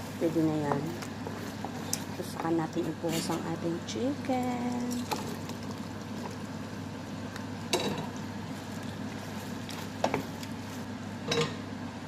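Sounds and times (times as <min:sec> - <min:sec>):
wooden spoon stirring: 0:00.2 - 0:06.9, 0:08.0 - 0:10.9
sauce bubbling in a pan: 0:04.2 - 0:11.0.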